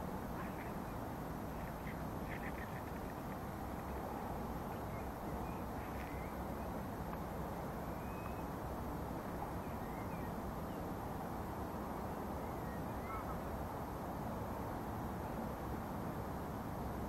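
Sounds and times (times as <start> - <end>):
low outdoor rushing noise: 0.0 - 17.0
faint bird calls: 0.3 - 3.4, 4.6 - 6.7, 7.9 - 8.5, 12.4 - 13.5.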